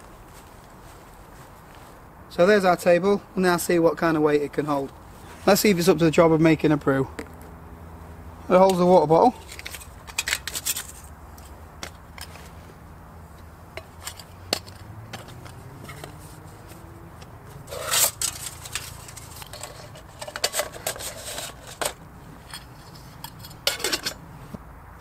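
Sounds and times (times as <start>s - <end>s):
scraping rustle: 9.3s - 24.6s.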